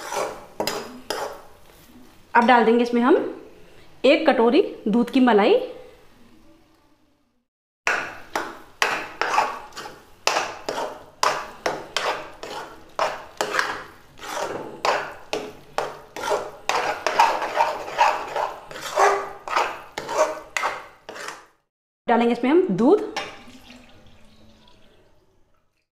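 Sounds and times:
metal spatula scraping a metal pan: 0:00.0 - 0:01.5, 0:07.9 - 0:21.6.

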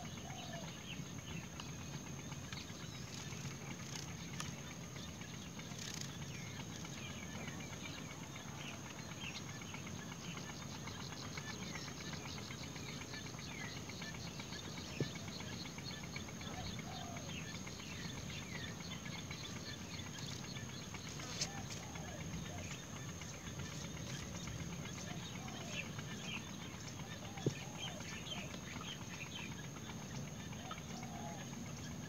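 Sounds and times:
insect hum: 0:00.0 - 0:32.0.

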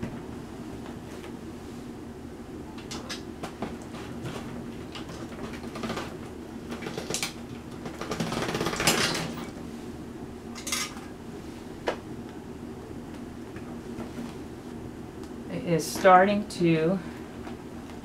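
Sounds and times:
pasta machine clicking and rattling: 0:05.0 - 0:09.4.

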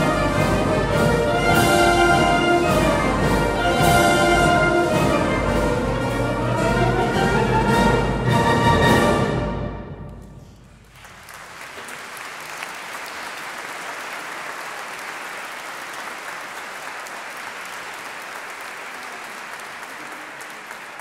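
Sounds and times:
audience applause: 0:10.7 - 0:21.0.

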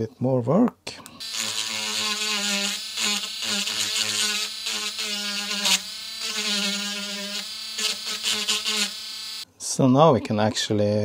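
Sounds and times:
rotary tool grinding plastic: 0:01.2 - 0:09.4.

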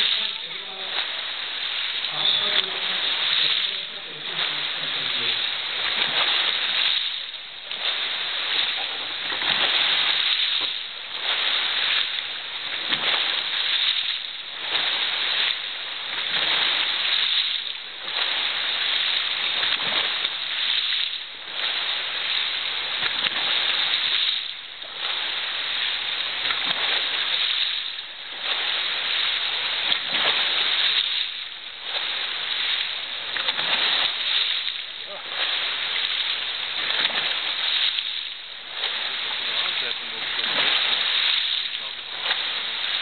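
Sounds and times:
water churning and splashing: 0:00.0 - 0:43.0.

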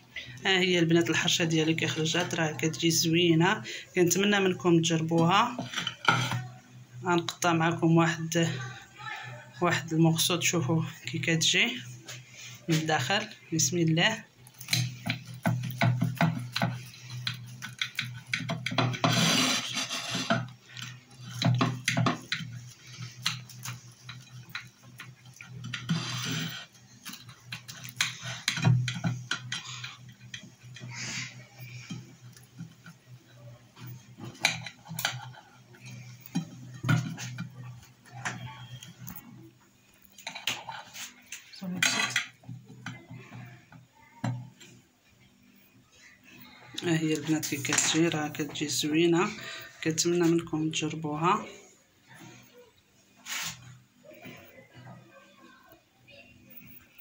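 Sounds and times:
knife scraping ceramic plate: 0:14.6 - 0:20.5, 0:21.4 - 0:32.5
knife sawing through crusty bread: 0:19.0 - 0:20.4.

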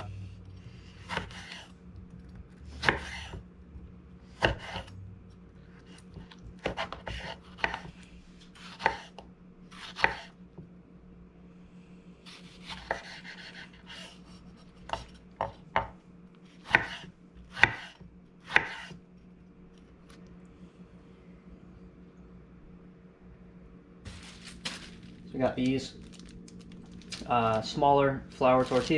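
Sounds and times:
knife cutting on wooden board: 0:01.0 - 0:01.7, 0:04.4 - 0:04.9, 0:06.2 - 0:07.9, 0:08.6 - 0:09.2, 0:09.8 - 0:10.3, 0:12.3 - 0:15.9, 0:16.6 - 0:19.0.

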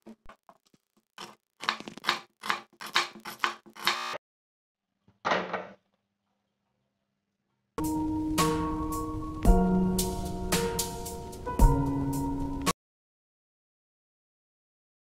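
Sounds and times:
knife chopping on wooden board: 0:01.2 - 0:04.0
pressure cooker rasp: 0:01.2 - 0:04.2.

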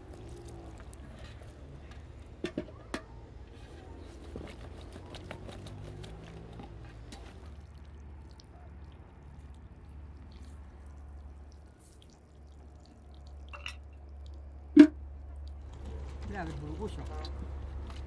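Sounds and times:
water trickling from basin: 0:07.4 - 0:17.2.

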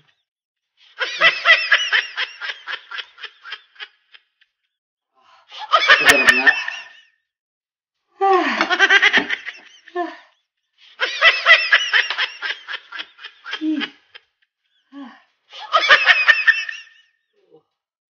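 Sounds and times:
person laughing hard: 0:05.8 - 0:06.9, 0:11.0 - 0:14.2.

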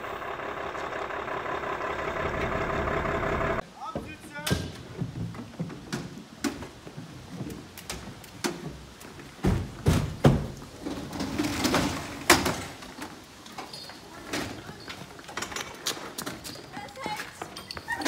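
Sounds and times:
footsteps: 0:13.4 - 0:18.0.

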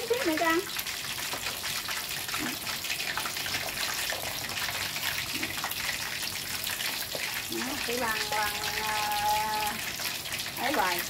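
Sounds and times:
oil sizzling and crackling: 0:00.0 - 0:11.0.

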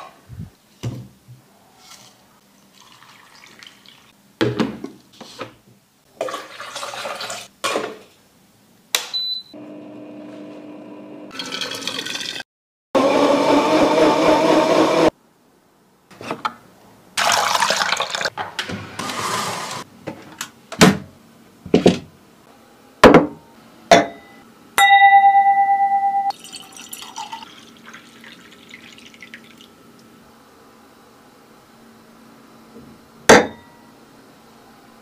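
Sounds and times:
blender running: 0:09.6 - 0:12.4, 0:13.0 - 0:15.1
steady ringing tone: 0:24.1 - 0:26.6
liquid poured into glass: 0:26.3 - 0:29.7.

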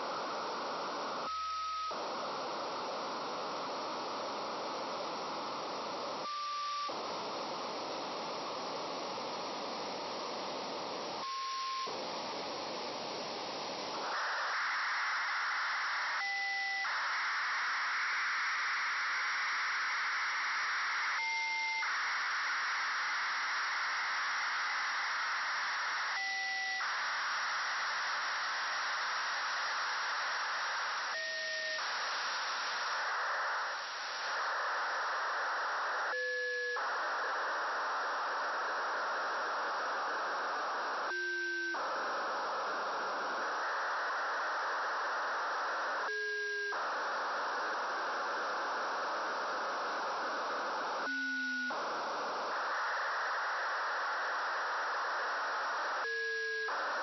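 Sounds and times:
radio static rushing: 0:13.0 - 0:57.0.

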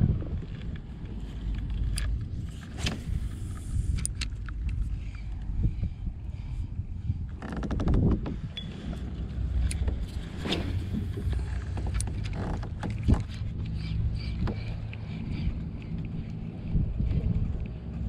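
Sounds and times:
steady low rumble: 0:00.0 - 0:18.0
fishing reel clicks and knocks: 0:01.4 - 0:05.5.

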